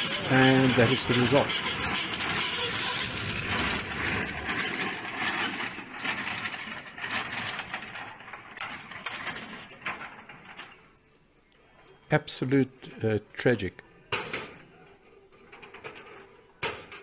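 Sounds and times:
helicopter rotor clattering: 0:00.0 - 0:10.7.

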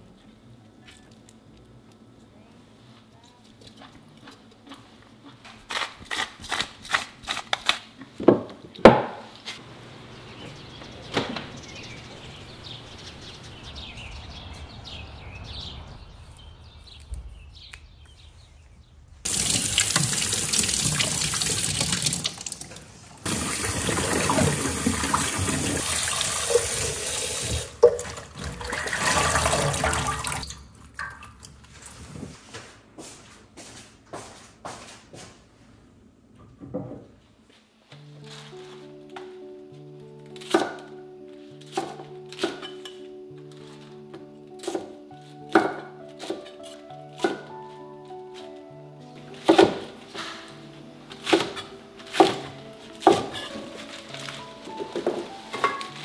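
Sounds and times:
tap water running into metal sink: 0:19.3 - 0:31.4.

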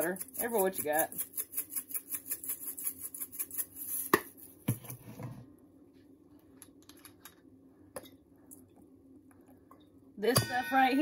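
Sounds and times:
spice shaker rattling: 0:00.0 - 0:04.6.

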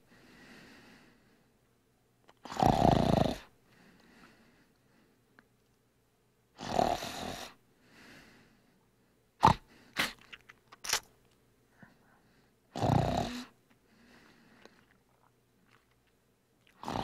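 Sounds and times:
person snoring: 0:02.4 - 0:03.5, 0:06.6 - 0:07.6, 0:09.4 - 0:09.7, 0:12.8 - 0:13.5, 0:16.8 - 0:17.0
short sharp snorts: 0:06.6 - 0:07.6, 0:09.4 - 0:10.5, 0:12.8 - 0:13.6.

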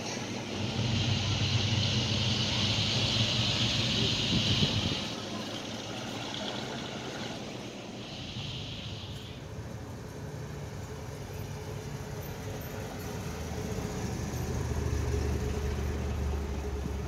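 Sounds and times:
vehicle engine passing: 0:00.0 - 0:09.1.

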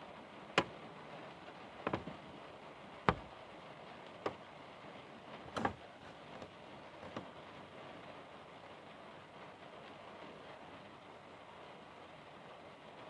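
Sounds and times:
sharp taps: 0:03.1 - 0:03.3.

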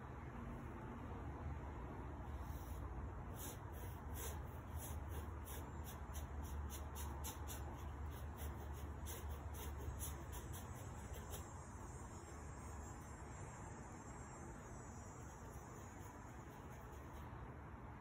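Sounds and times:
steady low hum: 0:00.0 - 0:18.0
paintbrush scratching on board: 0:02.3 - 0:13.0, 0:15.1 - 0:17.4.

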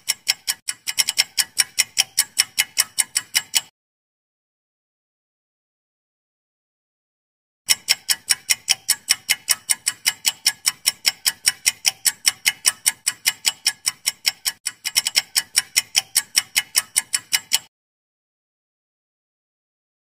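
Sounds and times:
rapid clock ticks: 0:00.0 - 0:03.7, 0:07.7 - 0:17.7.

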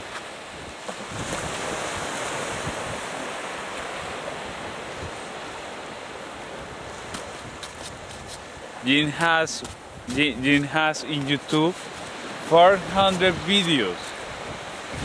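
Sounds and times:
wind buffeting microphone: 0:00.0 - 0:03.4, 0:09.6 - 0:10.5, 0:14.1 - 0:15.0
small waves washing on sand: 0:00.0 - 0:15.0.

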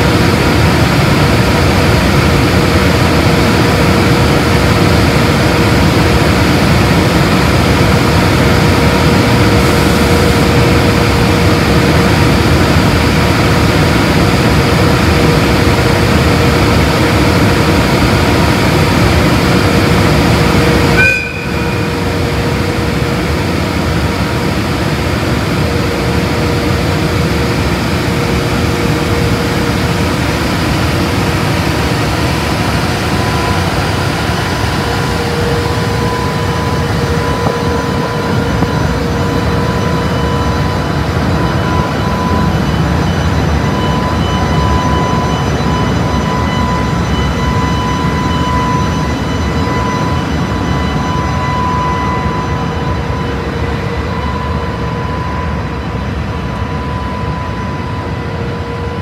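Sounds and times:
locomotive cooling blowers running: 0:00.0 - 0:59.0
short high tone: 0:21.0 - 0:22.2.

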